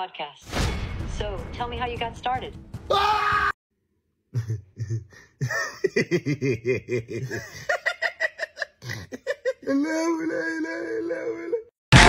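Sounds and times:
man laughing: 4.4 - 11.7.

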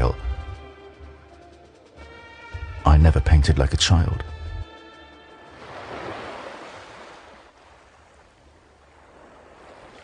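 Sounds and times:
sea waves washing in: 5.4 - 10.0.

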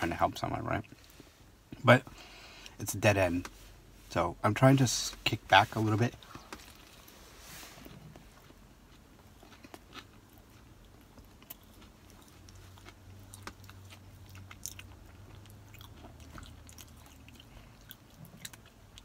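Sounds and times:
low steady hum: 0.0 - 19.0
chewing crispy food: 7.8 - 19.0.

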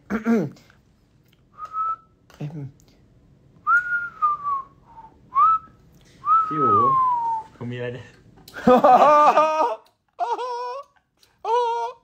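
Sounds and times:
man whistling: 1.6 - 2.1, 3.7 - 7.5.

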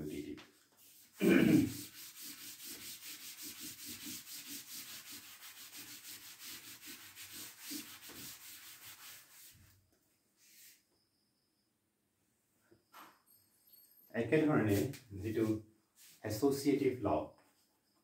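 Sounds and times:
eraser scrubbing a chalkboard: 0.6 - 9.7, 14.6 - 16.4.

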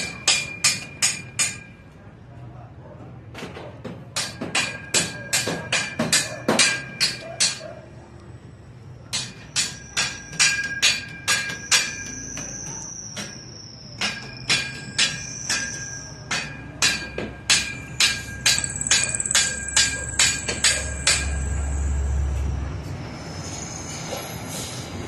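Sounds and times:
hammer striking steel: 0.0 - 2.0, 3.8 - 7.8, 9.1 - 22.2.

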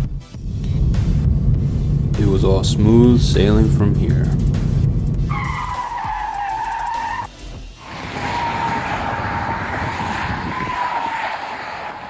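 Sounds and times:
car tyres screeching: 5.1 - 12.0.

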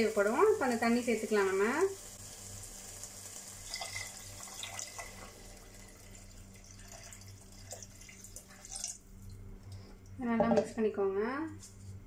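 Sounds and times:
water pouring and splashing: 2.9 - 9.3.

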